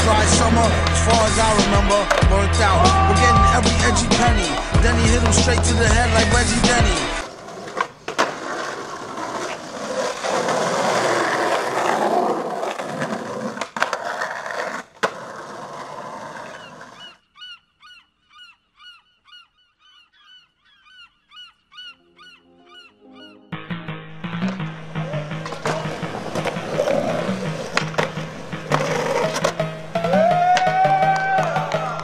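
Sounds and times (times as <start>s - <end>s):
skateboard clacks: 0.0s - 3.1s, 4.0s - 17.0s, 24.4s - 32.0s
skateboard wheels rolling on concrete: 0.0s - 17.2s, 24.2s - 32.0s
bird calling: 16.2s - 23.6s.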